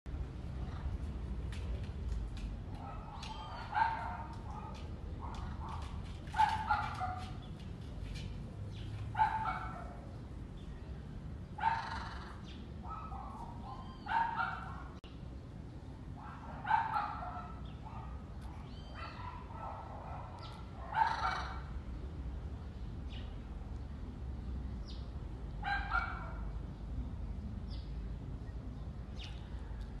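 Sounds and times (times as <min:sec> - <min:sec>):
loud barking calls: 0:02.8 - 0:07.4, 0:09.0 - 0:10.2, 0:11.6 - 0:15.0, 0:16.2 - 0:21.8, 0:25.6 - 0:26.6.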